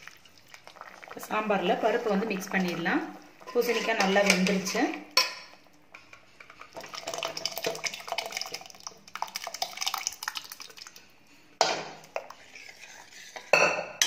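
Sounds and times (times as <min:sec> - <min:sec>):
ladle stirring in a pot: 0:00.0 - 0:14.0
steel cookware clattering: 0:03.4 - 0:06.6, 0:13.4 - 0:14.0
metal scraping a steel vessel: 0:03.5 - 0:05.3, 0:12.3 - 0:14.0.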